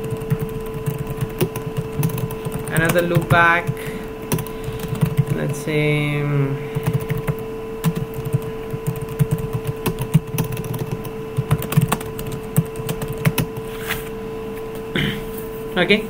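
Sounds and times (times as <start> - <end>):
keyboard typing clicks: 0.0 - 3.4
steady electrical hum: 0.0 - 16.0.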